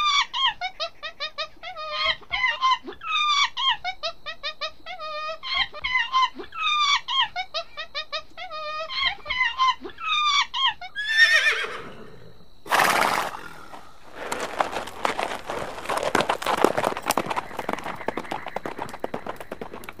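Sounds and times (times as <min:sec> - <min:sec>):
monkey chirping calls: 0:00.0 - 0:11.8
horse noisy blast: 0:12.6 - 0:17.5.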